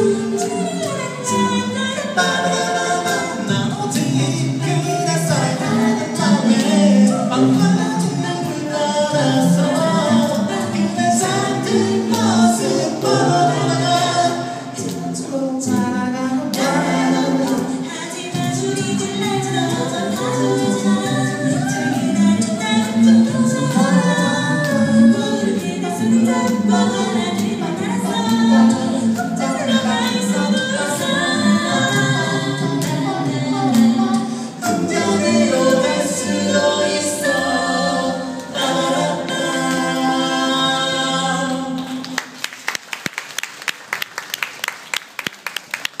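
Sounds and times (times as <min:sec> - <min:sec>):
a cappella group singing: 0:00.0 - 0:42.4
audience clapping: 0:41.7 - 0:46.0.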